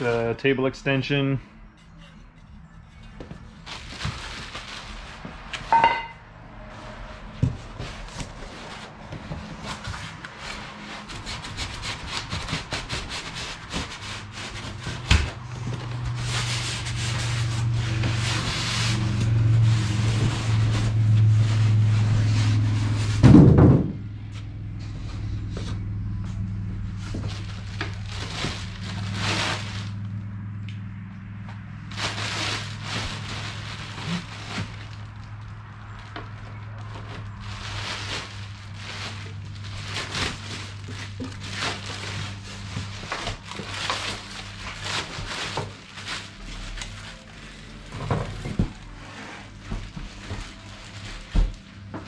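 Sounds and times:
packaging rubbing and rustling: 3.1 - 5.8, 6.8 - 23.2, 26.6 - 30.1, 31.8 - 52.0
loud thump: 23.2 - 24.0.

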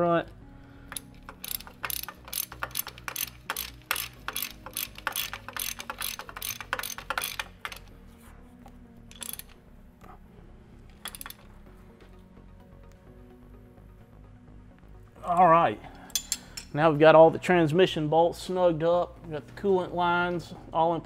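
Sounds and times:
hand ratchet clicking: 0.9 - 7.9, 9.1 - 9.6, 11.0 - 11.4, 16.1 - 16.7.

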